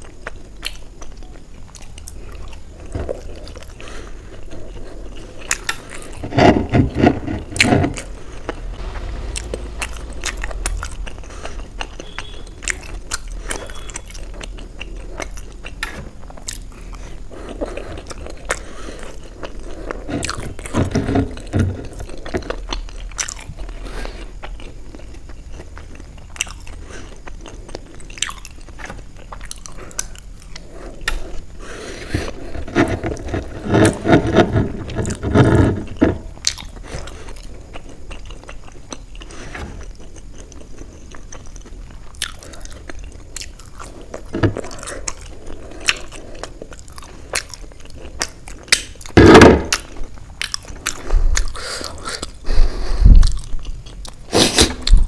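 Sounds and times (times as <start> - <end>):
close chewing and biting: 0.0 - 9.3, 10.5 - 55.0
low thumps: 6.3 - 14.1.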